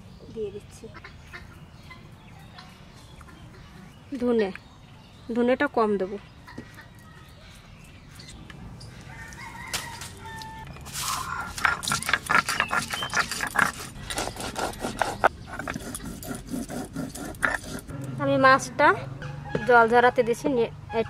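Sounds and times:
stone grinding seeds: 10.8s - 18.2s.

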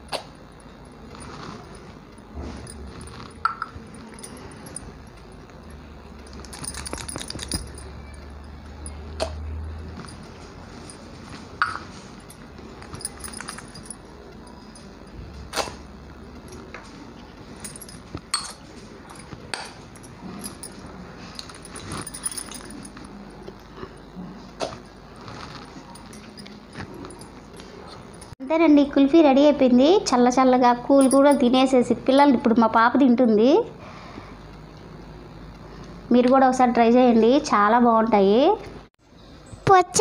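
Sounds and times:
metal tumblers clinking: 1.2s - 9.2s, 9.9s - 15.2s, 17.6s - 23.4s, 31.0s - 31.6s.

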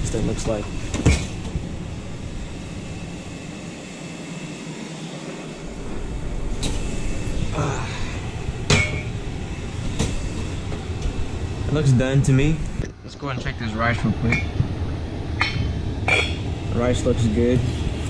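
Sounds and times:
steady low hum: 0.0s - 18.0s
dish clunking down: 8.7s - 9.2s, 15.4s - 16.4s.

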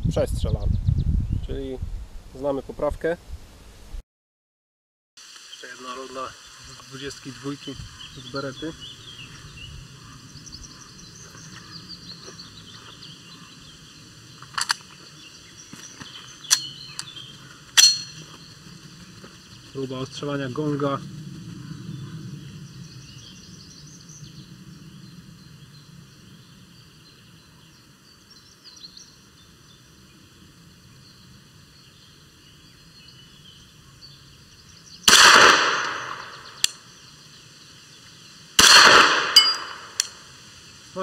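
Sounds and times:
pistol shots with echo: 35.1s - 36.4s, 38.6s - 40.1s.

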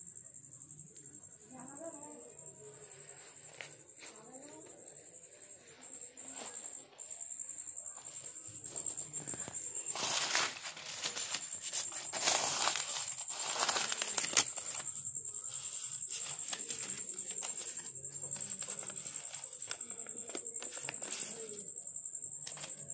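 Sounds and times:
banknotes rustling and crinkling: 2.8s - 22.9s.

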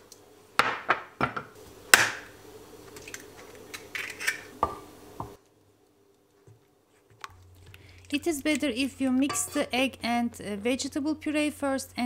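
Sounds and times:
bowl and utensils clinking: 9.2s - 9.8s.

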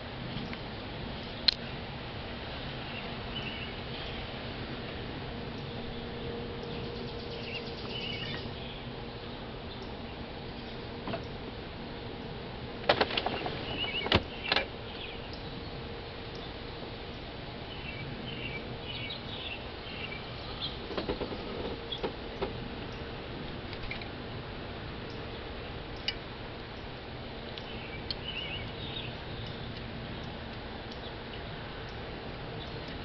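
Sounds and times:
faint steady hum: 0.0s - 33.0s
high bird chirps: 6.6s - 8.9s
sharp clicks and knocks: 12.8s - 14.7s.

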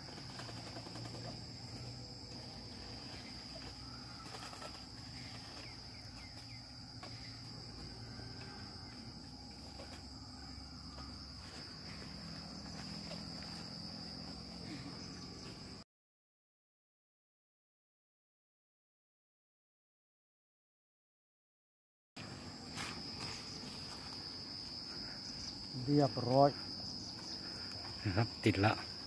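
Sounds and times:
insects trilling: 0.0s - 15.8s, 22.2s - 29.0s.

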